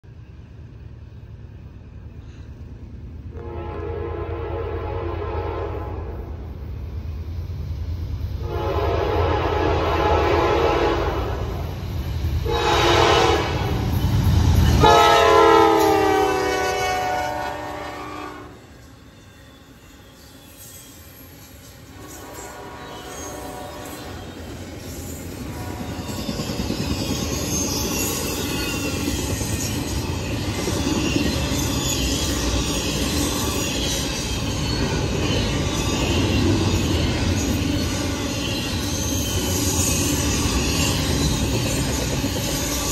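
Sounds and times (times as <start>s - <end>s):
train wheels rumbling on rail: 0.0s - 42.9s
locomotive air horn blasts: 3.3s - 6.2s, 8.4s - 11.5s, 12.4s - 13.8s, 14.8s - 18.6s, 22.0s - 24.1s
high wheel squeals: 18.5s - 42.9s.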